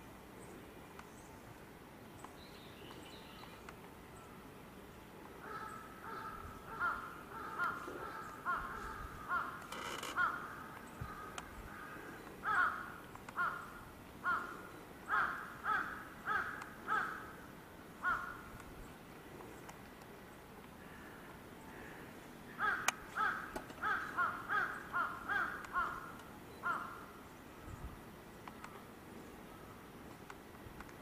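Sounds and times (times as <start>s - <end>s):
crow cawing: 5.4s - 17.3s, 18.0s - 18.5s, 20.8s - 27.1s.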